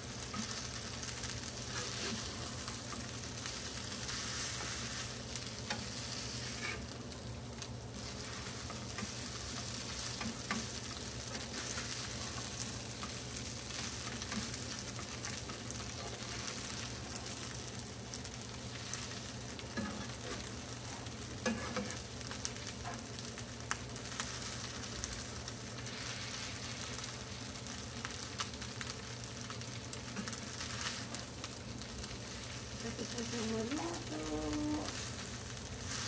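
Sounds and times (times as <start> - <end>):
rice sizzling in a frying pan: 0.0 - 36.0
utensils scraping a pan: 1.6 - 2.4, 4.0 - 6.9, 21.4 - 22.0.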